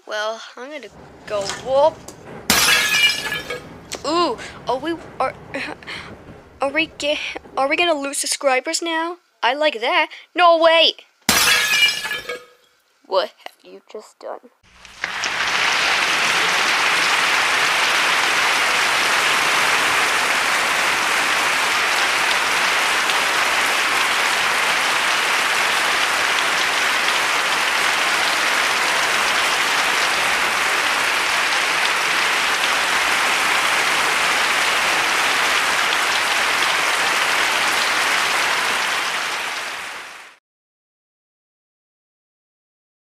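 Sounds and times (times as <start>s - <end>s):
steady rushing noise: 0.8s - 8.2s.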